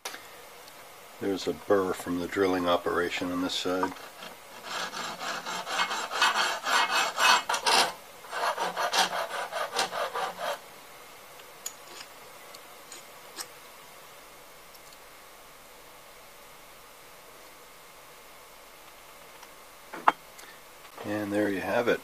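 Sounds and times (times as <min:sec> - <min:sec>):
hand file scraping metal: 0:03.7 - 0:10.6.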